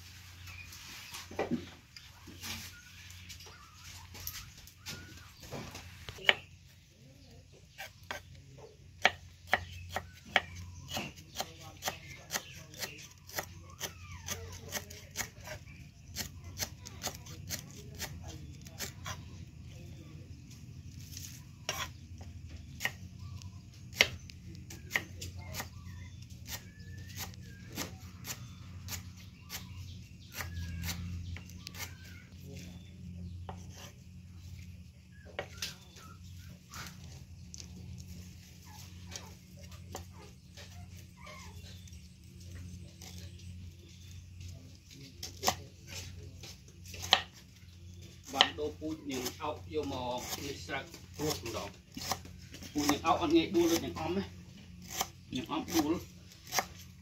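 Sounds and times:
knife chopping on cutting board: 9.0 - 13.5.

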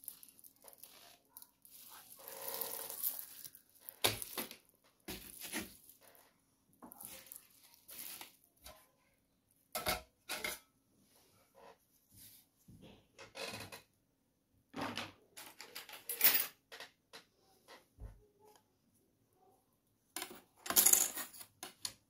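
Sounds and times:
plastic bag crinkling: 0.0 - 6.2, 6.9 - 8.5.

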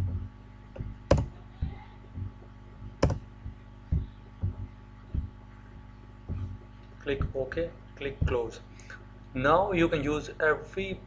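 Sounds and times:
keyboard keys pressed: 0.0 - 5.4
faint electrical hum: 0.0 - 11.0.

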